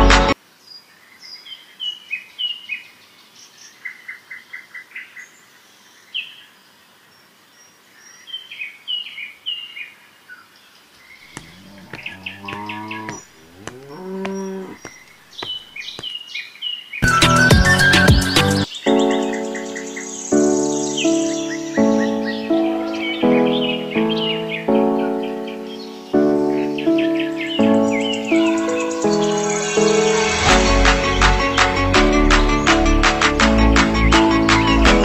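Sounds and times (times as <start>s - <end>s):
small birds chirping: 0.6s - 30.0s
cow mooing: 11.4s - 14.9s.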